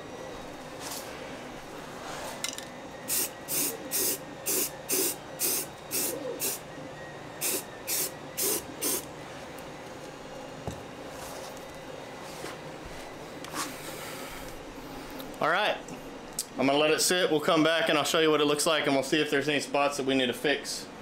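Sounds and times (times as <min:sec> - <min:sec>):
aerosol spray can hissing: 0:03.1 - 0:06.6, 0:07.4 - 0:09.1.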